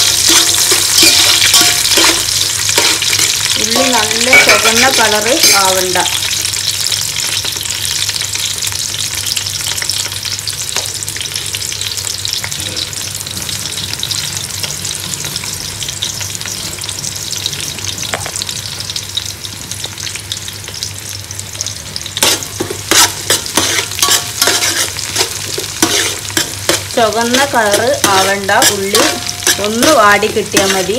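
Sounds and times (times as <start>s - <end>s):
metal spoon scraping pot: 0.0s - 5.8s, 22.2s - 30.9s
onions sizzling in oil: 0.0s - 30.9s.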